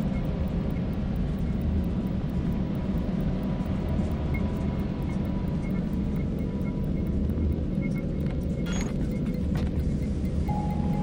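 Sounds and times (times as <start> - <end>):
ambient drone music: 4.0 - 11.0.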